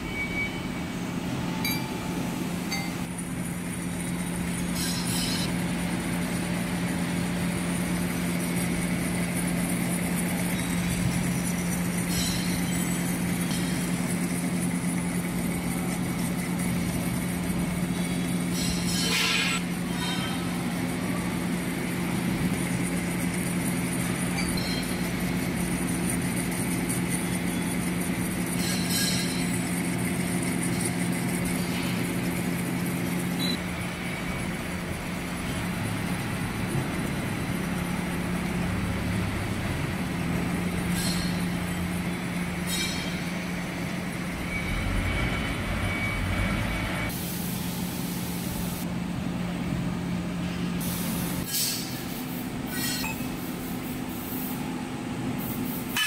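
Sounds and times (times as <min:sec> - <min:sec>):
metal lathe motor hum: 0:02.6 - 0:47.2
turning tool cutting metal: 0:08.6 - 0:20.2, 0:22.5 - 0:33.6.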